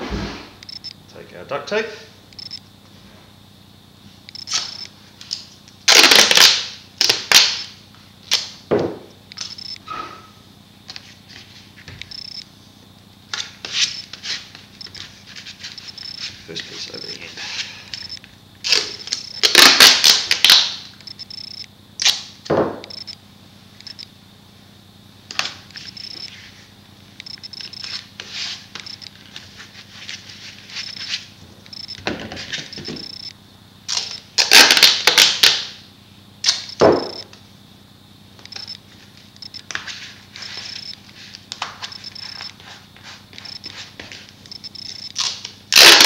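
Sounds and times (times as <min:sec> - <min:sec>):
duct tape ripping off roll: 0:05.9 - 0:07.6, 0:18.6 - 0:20.8, 0:33.9 - 0:35.6, 0:45.2 - 0:46.0.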